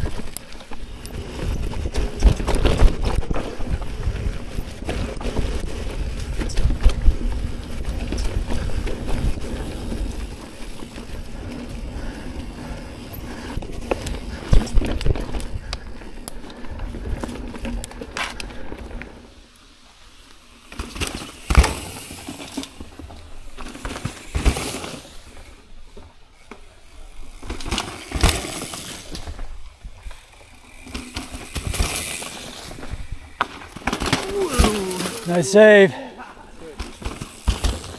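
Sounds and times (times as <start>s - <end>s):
bike tyres rolling on dirt: 0.0s - 37.9s
bike rattling knocks: 1.0s - 9.4s.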